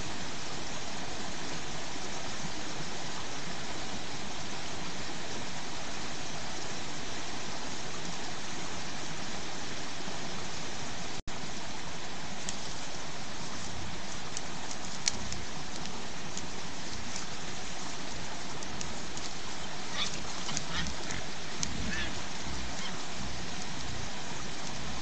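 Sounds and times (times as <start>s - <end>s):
stream flowing: 0.0s - 25.0s
faint ticks: 14.3s - 17.3s.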